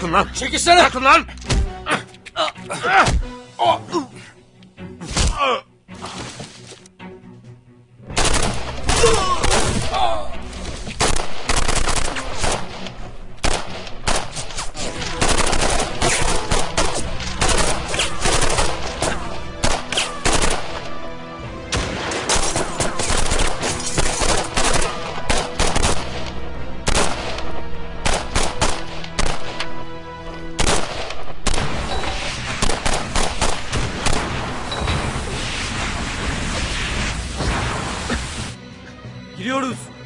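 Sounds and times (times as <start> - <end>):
dramatic background music: 0.0 - 40.0
gunfire: 8.1 - 10.0, 11.0 - 20.8, 21.7 - 29.6, 30.6 - 34.8.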